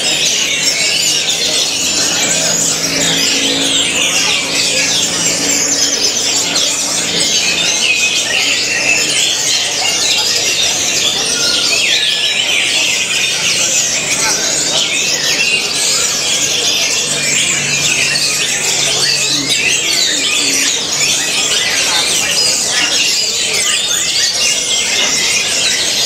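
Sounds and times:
thrushes singing: 0.0 - 26.0
faint low drone: 0.3 - 9.4.

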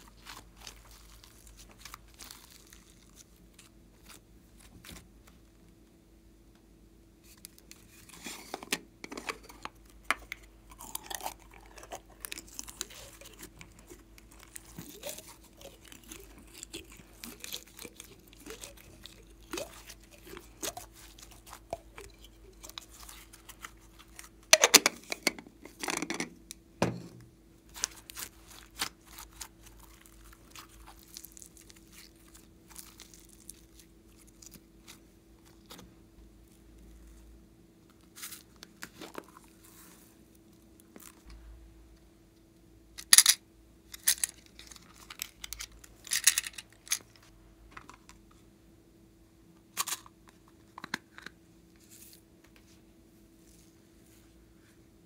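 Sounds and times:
slime crackling and popping: 0.0 - 5.0.

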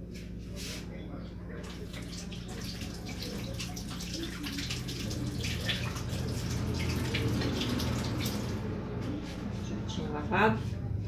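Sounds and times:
tap water splashing on hands: 1.6 - 8.6.

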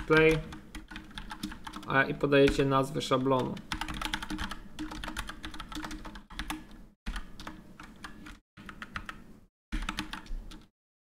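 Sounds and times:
typing on computer keyboard: 0.0 - 1.9, 3.4 - 10.7.

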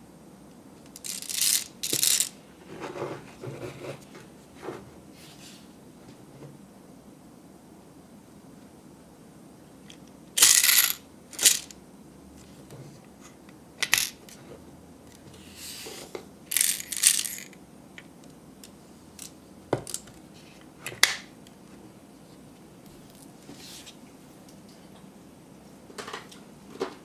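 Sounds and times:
candy rattling out of dispenser: 1.0 - 2.3, 10.4 - 11.7, 16.5 - 17.5.

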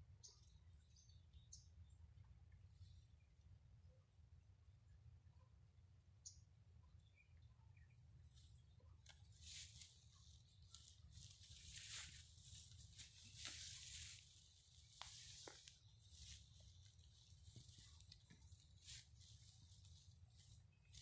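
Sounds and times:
leaves and brush rustling: 8.3 - 21.0.

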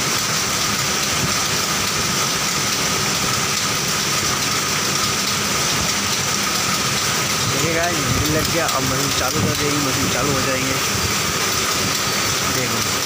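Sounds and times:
machinery hiss and whir: 0.0 - 13.0.

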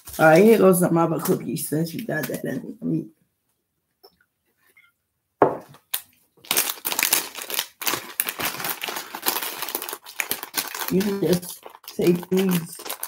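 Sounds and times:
plastic wrapper crinkling: 0.0 - 2.6, 5.7 - 13.0.

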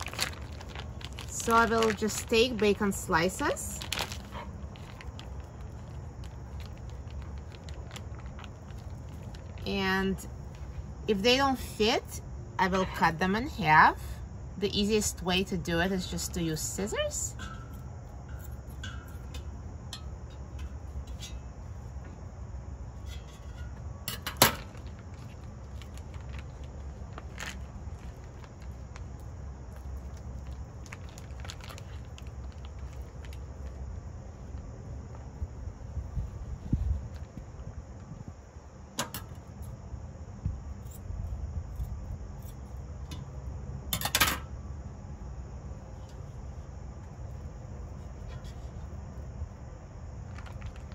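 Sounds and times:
plastic package rustling: 0.0 - 9.7, 24.5 - 34.0, 50.2 - 50.9
low outdoor rumble: 0.0 - 50.9.

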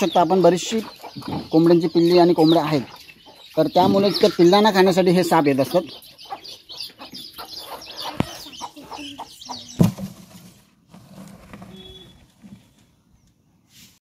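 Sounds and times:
chicks peeping: 0.0 - 10.1
chickens clucking: 0.0 - 10.7.

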